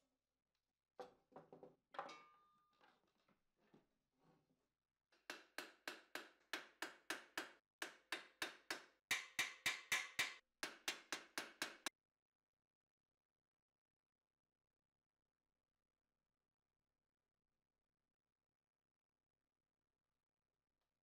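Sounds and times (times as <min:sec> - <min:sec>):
hammer tapping on metal: 0:05.2 - 0:11.9.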